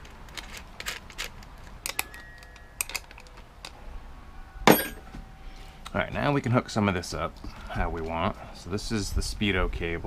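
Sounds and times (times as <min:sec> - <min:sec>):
short metallic ring: 0:04.4 - 0:05.4.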